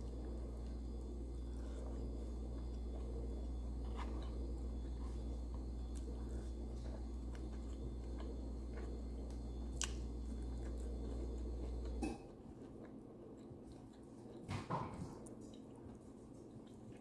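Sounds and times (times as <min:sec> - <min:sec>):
person chewing food: 0:00.0 - 0:17.0
steady low hum: 0:00.0 - 0:17.0.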